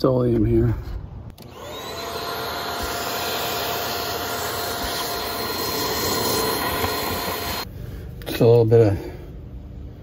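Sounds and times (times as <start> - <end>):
vacuum cleaner whining: 1.4 - 7.7.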